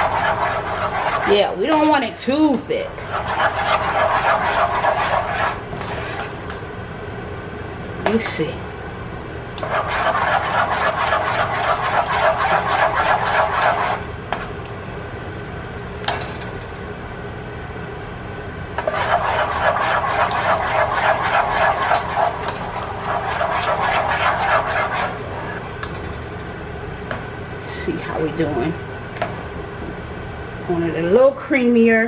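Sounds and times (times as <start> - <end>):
spatula scraping sauce in pot: 0.0 - 1.8, 3.0 - 6.4, 9.6 - 14.1, 18.8 - 25.6.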